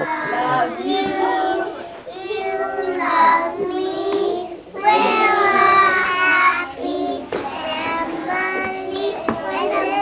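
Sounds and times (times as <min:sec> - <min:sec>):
toddlers singing together: 0:00.0 - 0:10.0.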